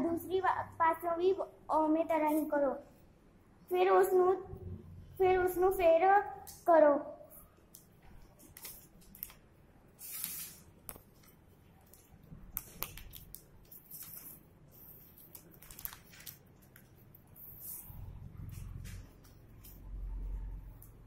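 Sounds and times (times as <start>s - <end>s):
paper rustling and crinkling: 8.2s - 9.4s, 10.0s - 17.0s.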